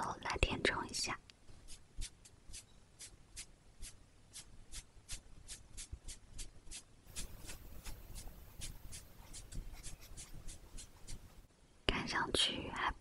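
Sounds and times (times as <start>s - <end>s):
makeup brush strokes: 1.6s - 11.5s.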